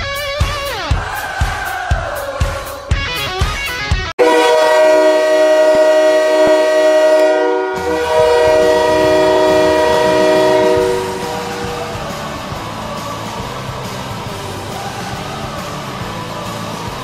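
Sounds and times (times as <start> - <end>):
music: 0.0 - 4.2, 6.0 - 17.0
arena goal horn blast: 4.2 - 12.1.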